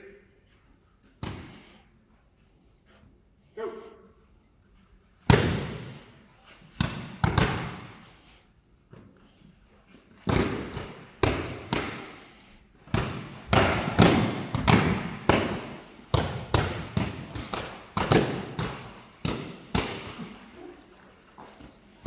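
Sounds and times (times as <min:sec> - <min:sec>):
padded swords thudding: 0:10.2 - 0:20.6.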